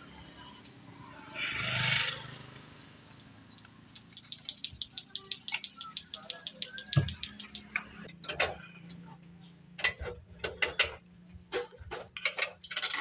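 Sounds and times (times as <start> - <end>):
hand tools knocking and clinking: 9.8 - 13.0.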